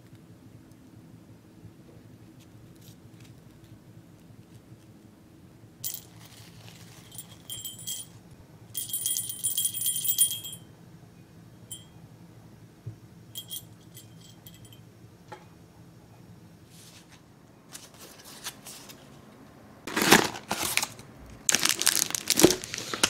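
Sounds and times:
jingle bell shaken: 0:05.8 - 0:08.2, 0:08.8 - 0:10.6, 0:13.4 - 0:14.8.

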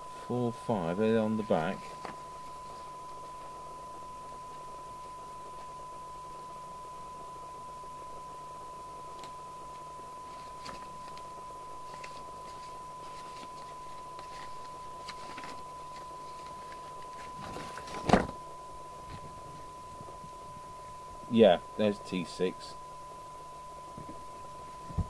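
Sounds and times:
steady test tone: 0:00.0 - 0:25.0
radio handling clicks and rustles: 0:01.8 - 0:03.5, 0:09.2 - 0:18.4.

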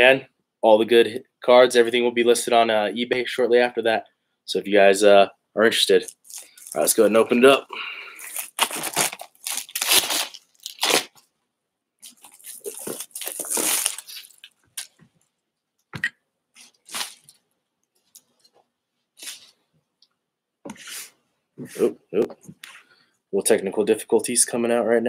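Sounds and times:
shrink wrap crinkling and tearing: 0:06.0 - 0:07.2, 0:08.2 - 0:11.2, 0:12.0 - 0:15.0, 0:16.6 - 0:17.4.

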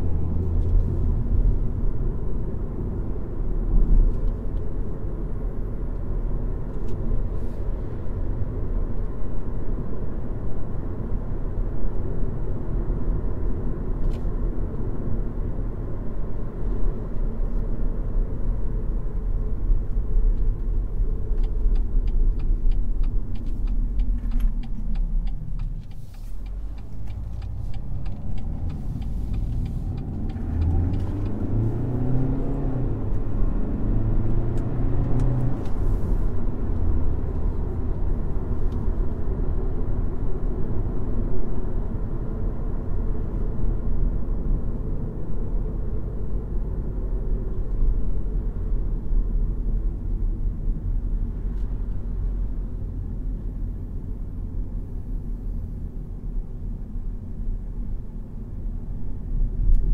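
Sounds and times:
road rumble: 0:00.0 - 0:59.9
car engine running: 0:19.4 - 0:33.5
turn signal ticking: 0:20.3 - 0:32.4.

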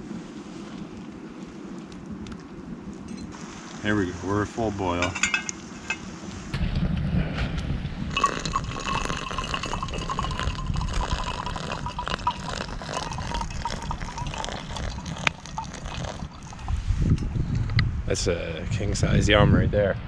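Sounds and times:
low rumbling noise: 0:00.0 - 0:20.0
water pouring from kettle: 0:08.1 - 0:16.7.

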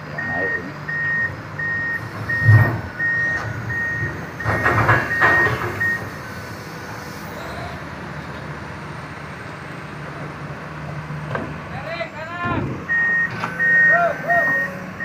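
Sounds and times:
diesel engine running: 0:00.0 - 0:15.0
excavator alarm beeping: 0:00.1 - 0:06.2, 0:12.9 - 0:15.0.

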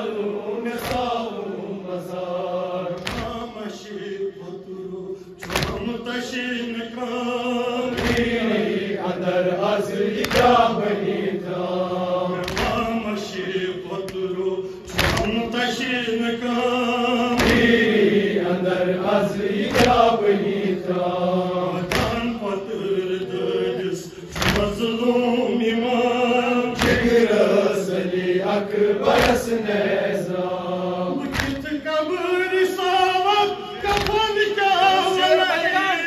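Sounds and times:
man chanting into a microphone: 0:00.0 - 0:09.9, 0:12.3 - 0:17.8, 0:21.5 - 0:29.7, 0:31.1 - 0:36.0
chest-beating slaps: 0:00.8 - 0:01.2, 0:02.9 - 0:03.6, 0:05.4 - 0:06.0, 0:07.9 - 0:08.6, 0:10.1 - 0:10.7, 0:12.4 - 0:13.0, 0:14.0 - 0:15.4, 0:17.3 - 0:17.9, 0:19.6 - 0:20.2, 0:21.8 - 0:22.4, 0:24.3 - 0:24.9, 0:26.8 - 0:27.4, 0:29.0 - 0:29.6, 0:31.2 - 0:31.8, 0:33.8 - 0:34.3.

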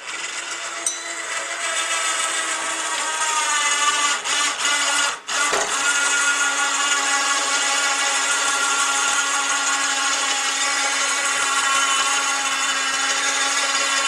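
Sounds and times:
electric winch whining: 0:00.0 - 0:14.0.

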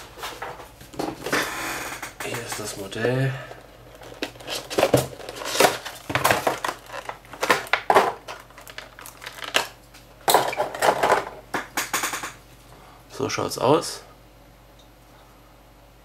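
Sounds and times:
plastic blister tray crackling: 0:02.2 - 0:11.2.

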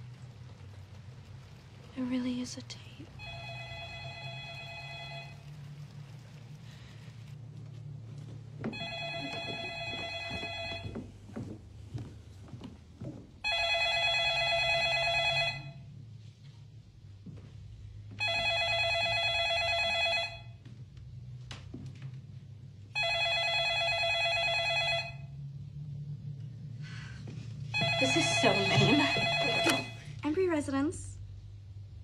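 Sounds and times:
low steady hum: 0:00.0 - 0:32.0
landline telephone ringing: 0:03.2 - 0:05.6, 0:08.7 - 0:11.0, 0:13.4 - 0:15.8, 0:18.2 - 0:20.6, 0:23.0 - 0:25.4, 0:27.8 - 0:30.1.

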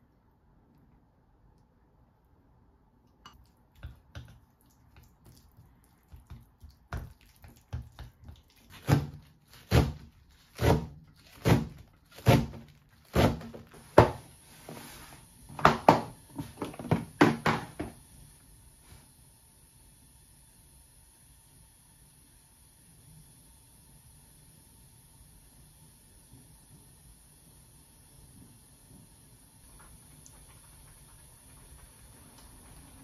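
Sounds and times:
knife slicing lettuce on board: 0:07.7 - 0:14.2.

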